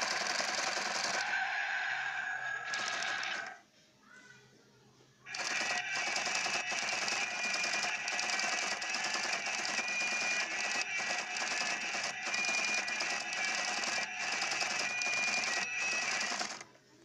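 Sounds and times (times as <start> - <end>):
toy car electronic buzzing: 2.4 - 3.6, 5.3 - 16.7.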